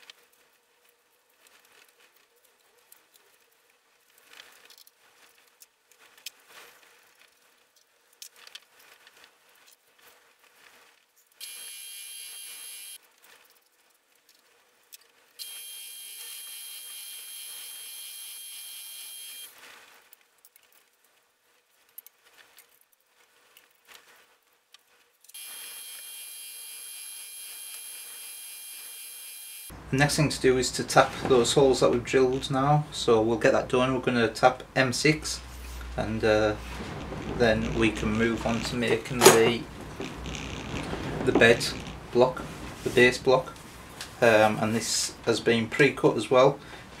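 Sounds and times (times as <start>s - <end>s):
faint crackles and clicks: 0.0s - 11.4s, 12.9s - 15.4s, 19.3s - 26.1s, 33.7s - 46.0s.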